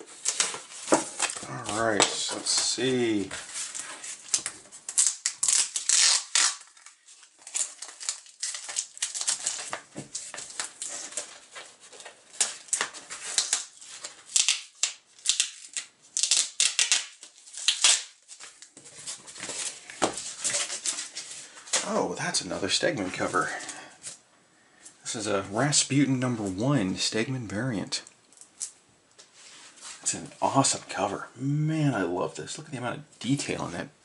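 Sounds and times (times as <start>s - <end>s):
cardboard and tape ripping: 0.0s - 22.0s.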